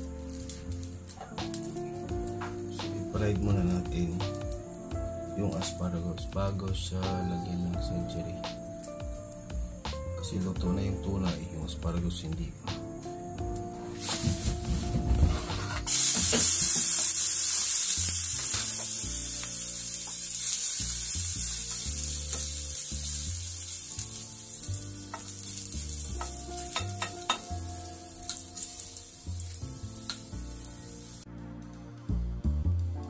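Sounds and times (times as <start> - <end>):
garlic sizzling in a frying pan: 0.0 - 9.9, 13.2 - 31.3
spatula scraping and tapping pan: 25.1 - 27.5.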